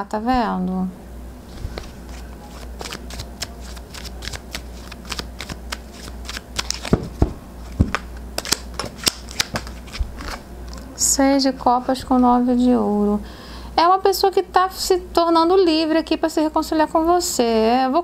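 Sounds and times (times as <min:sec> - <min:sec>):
cards being shuffled: 0:01.5 - 0:10.9
sharp card snaps: 0:07.9 - 0:09.8.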